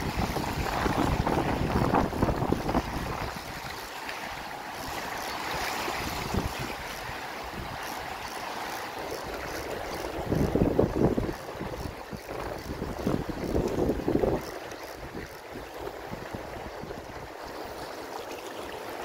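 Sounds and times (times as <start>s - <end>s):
wind buffeting microphone: 0.0s - 3.9s, 5.8s - 8.1s, 9.1s - 17.5s
small waves washing: 0.0s - 19.0s.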